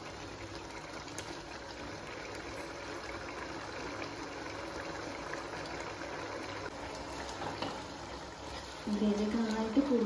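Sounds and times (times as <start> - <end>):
gravy bubbling: 0.0 - 10.0
wooden spatula stirring: 7.1 - 9.8.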